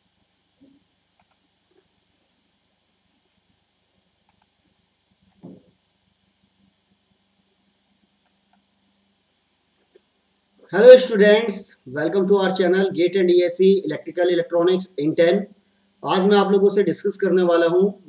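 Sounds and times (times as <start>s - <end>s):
low room hum: 0.0s - 18.0s
computer mouse clicks: 1.2s - 1.8s, 4.3s - 4.6s, 5.3s - 5.7s, 8.2s - 8.7s.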